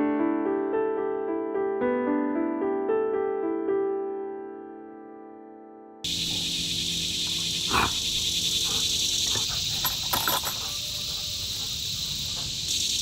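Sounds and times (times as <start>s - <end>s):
soft piano music: 0.0s - 6.1s
insects buzzing: 6.0s - 13.0s.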